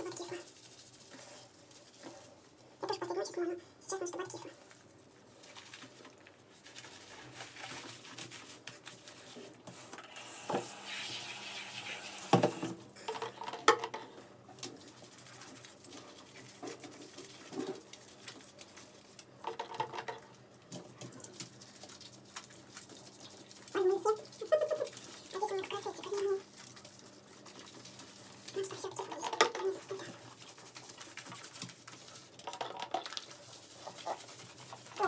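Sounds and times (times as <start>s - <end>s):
hands squelching wet lather: 20.9s - 32.4s, 33.0s - 35.0s.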